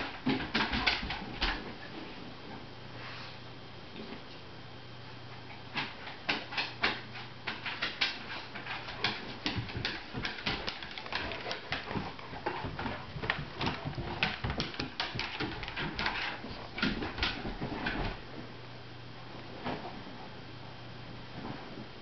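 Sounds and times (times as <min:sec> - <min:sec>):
dog claws scrabbling on wooden floor: 0:00.0 - 0:01.9, 0:05.8 - 0:18.2
dull bumps of dog bodies: 0:05.8 - 0:18.5.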